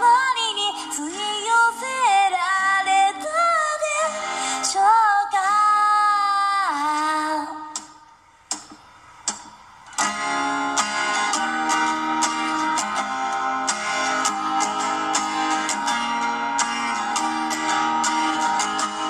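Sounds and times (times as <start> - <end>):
acoustic guitar strumming: 0.0 - 5.0, 6.7 - 19.0
woman singing: 0.0 - 8.0.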